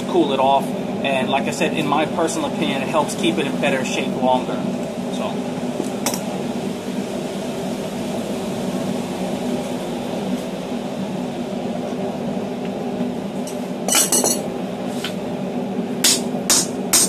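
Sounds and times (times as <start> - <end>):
mechanical hum: 0.0 - 17.0
metal clanks on anvil: 13.9 - 14.4.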